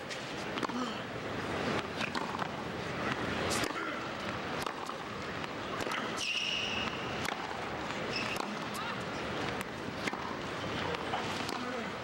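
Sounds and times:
murmur of stadium crowd: 0:00.0 - 0:12.0
tennis ball struck by rackets: 0:01.7 - 0:03.9, 0:04.5 - 0:08.8, 0:09.5 - 0:11.8.

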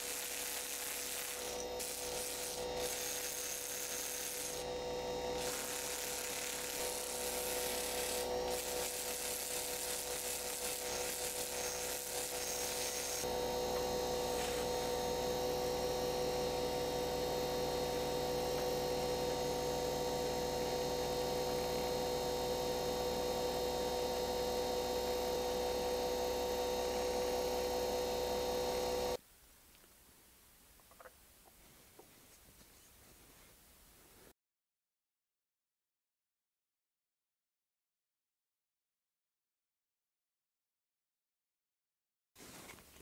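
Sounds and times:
rotary tool motor whine: 0:00.0 - 0:29.2.

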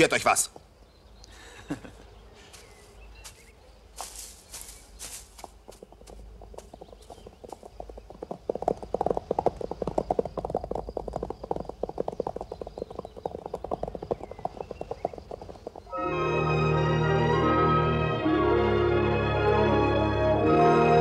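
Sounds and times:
horses hoofbeats: 0:02.5 - 0:17.9.

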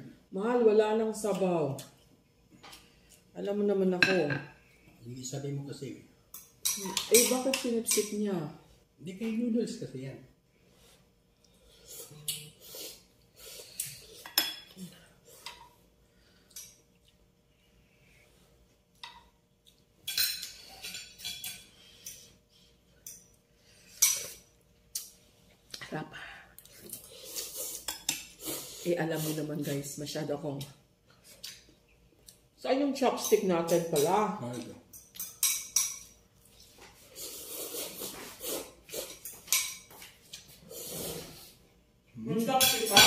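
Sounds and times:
spoons clinking against bowls: 0:33.2 - 0:36.2, 0:42.5 - 0:43.0.

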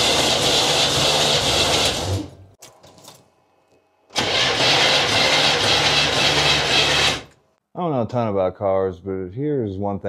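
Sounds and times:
engine cranking on starter: 0:04.1 - 0:07.3.

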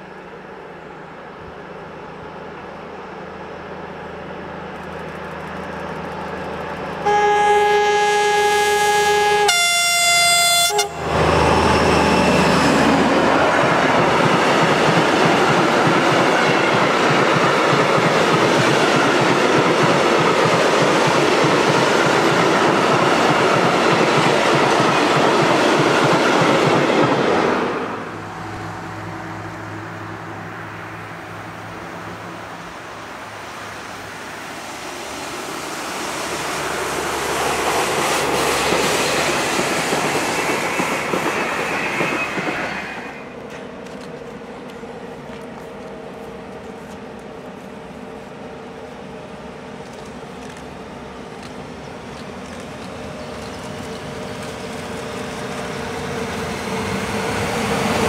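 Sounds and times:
two-tone train horn: 0:07.0 - 0:11.2.

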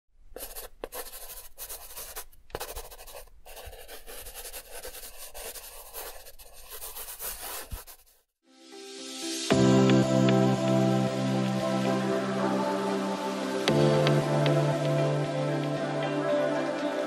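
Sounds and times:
marker scratching on board: 0:00.4 - 0:08.2.

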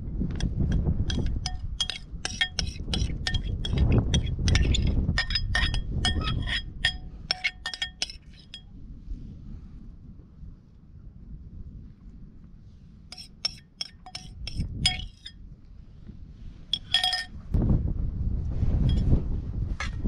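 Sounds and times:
metal spoon clinking on ceramic bowl: 0:00.7 - 0:08.6, 0:13.2 - 0:15.3, 0:16.8 - 0:17.3
low rumble: 0:08.5 - 0:13.2, 0:14.4 - 0:20.0.

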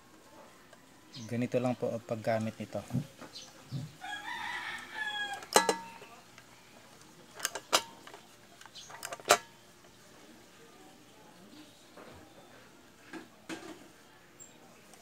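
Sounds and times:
rooster crowing: 0:04.0 - 0:06.0
hand riveter clicks: 0:07.4 - 0:09.5.

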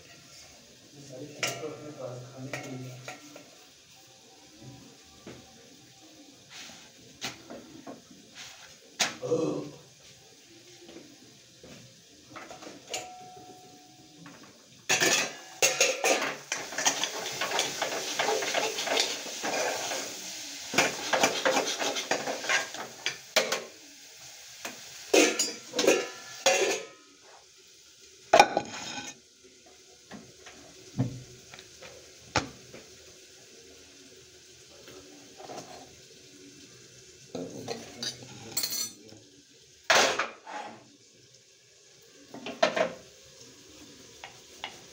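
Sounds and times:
utensils and cookware clattering: 0:01.1 - 0:03.8, 0:12.2 - 0:23.8, 0:24.6 - 0:27.2, 0:28.4 - 0:29.2, 0:35.3 - 0:36.2, 0:37.3 - 0:39.2, 0:39.9 - 0:40.9, 0:42.3 - 0:43.1
metal spoon scraping pot: 0:28.4 - 0:29.2.

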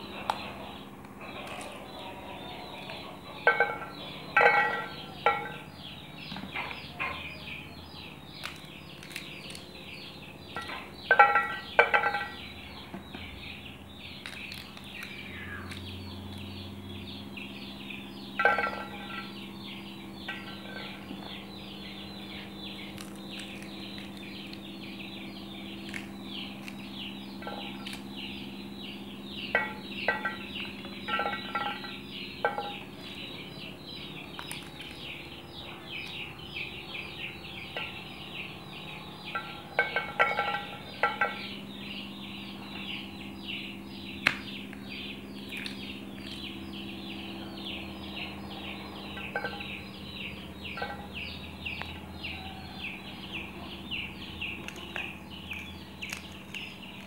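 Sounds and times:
birds chirping: 0:00.0 - 0:57.0
steady low hum: 0:00.0 - 0:57.0.

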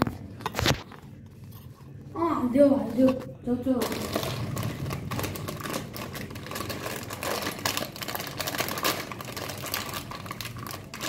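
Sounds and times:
plastic packet crinkling: 0:02.9 - 0:11.0.

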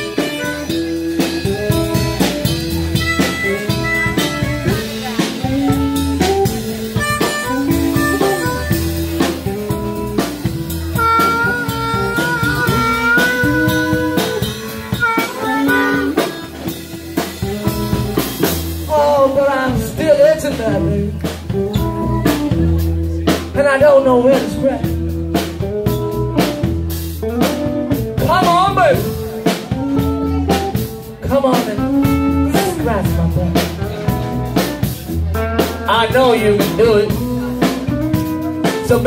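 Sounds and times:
amplified harmonica: 0:00.0 - 0:02.2, 0:02.8 - 0:09.9, 0:10.7 - 0:16.9
drum kit: 0:00.0 - 0:39.0
electric bass: 0:00.0 - 0:39.0
electric guitar: 0:00.0 - 0:39.0.

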